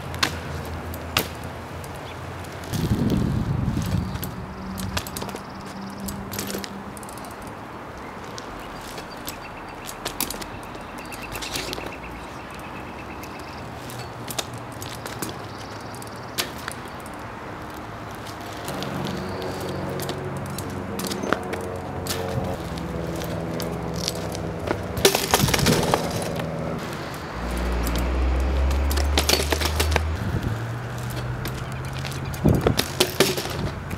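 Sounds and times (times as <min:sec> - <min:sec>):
bike clicks and knocks: 0:00.0 - 0:33.9
bike tyres rolling on asphalt: 0:00.0 - 0:33.9
sustained chords music: 0:18.7 - 0:25.0, 0:26.1 - 0:32.4
sharp clattering hits: 0:23.6 - 0:33.9.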